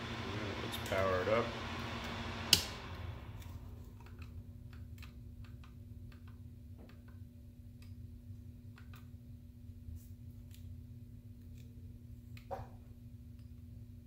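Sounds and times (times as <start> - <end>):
extractor fan noise: 0.0 - 4.8
switch click: 2.5 - 2.8.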